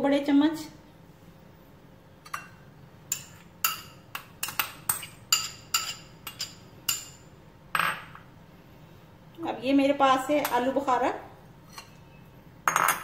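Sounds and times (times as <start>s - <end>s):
metal spoon clinking glass bowl: 2.3s - 8.1s.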